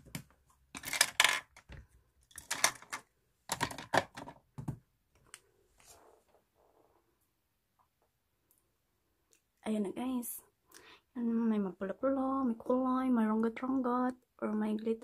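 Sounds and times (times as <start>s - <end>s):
plastic cases clicking and clattering: 0.0s - 4.8s.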